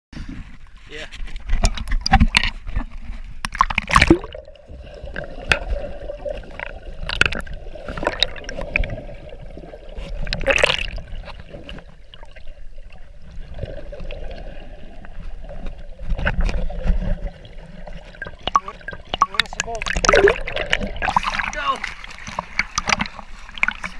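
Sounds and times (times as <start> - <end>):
muffled underwater splashing: 0.2 - 23.9
loud splash: 3.6 - 4.5, 18.4 - 22.1.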